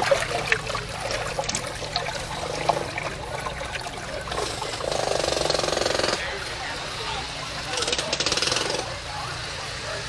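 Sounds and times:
small splashes and crackles: 0:00.0 - 0:05.0
water trickling and pouring: 0:00.0 - 0:05.4
low machine hum: 0:00.0 - 0:07.8.

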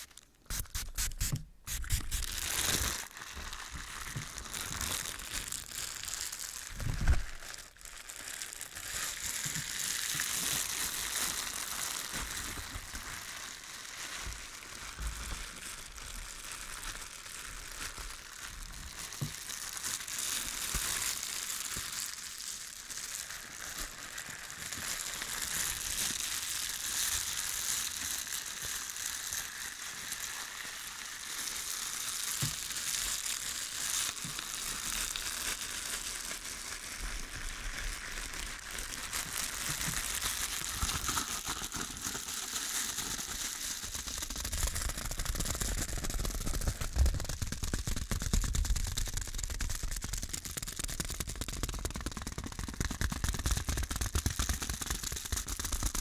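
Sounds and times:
matches burning with crackling hiss: 0:00.0 - 0:07.7, 0:24.3 - 0:36.4, 0:38.2 - 0:50.6.

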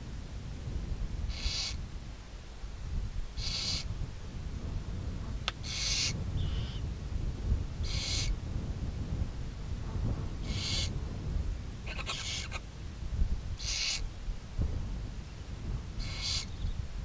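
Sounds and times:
owl rasping hisses: 0:01.3 - 0:01.8, 0:03.4 - 0:03.9, 0:05.6 - 0:06.8, 0:07.8 - 0:08.4, 0:10.4 - 0:11.0, 0:11.9 - 0:12.7, 0:13.6 - 0:14.1, 0:16.0 - 0:16.6.

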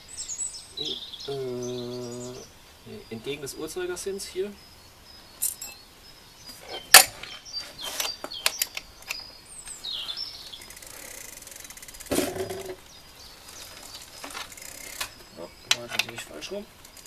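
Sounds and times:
bird chirping: 0:00.0 - 0:17.0
rapid fine ticking: 0:10.5 - 0:12.7, 0:14.0 - 0:15.5.

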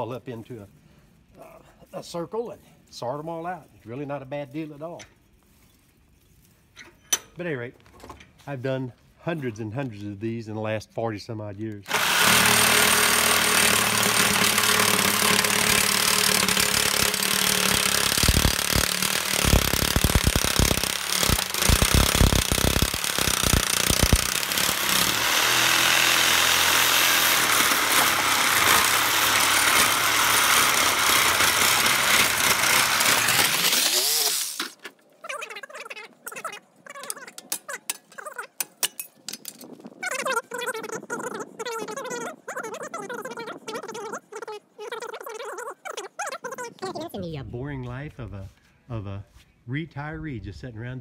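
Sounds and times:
reciprocating saw cutting metal: 0:11.9 - 0:34.8.

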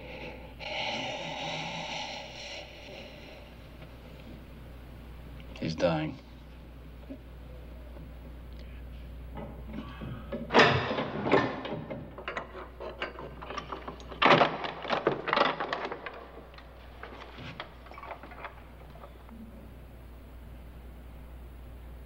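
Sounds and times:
irregular knocks and clatter: 0:09.3 - 0:19.3.

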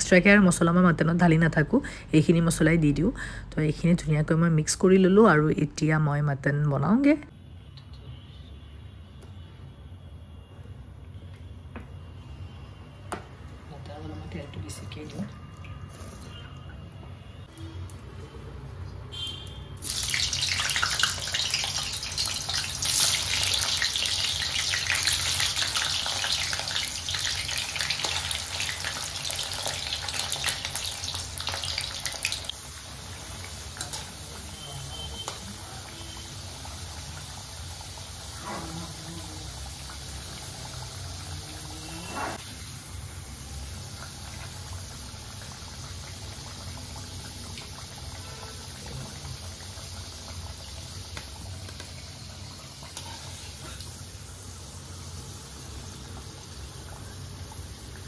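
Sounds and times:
potatoes sizzling in hot oil: 0:19.8 - 0:58.0.

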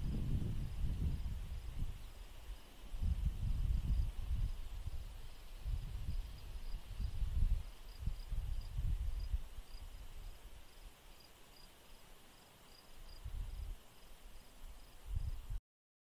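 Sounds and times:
wind buffeting microphone: 0:00.0 - 0:10.6, 0:13.1 - 0:13.8, 0:15.0 - 0:15.6
crickets chirping: 0:00.0 - 0:15.4
faint insect hiss: 0:00.0 - 0:15.6.

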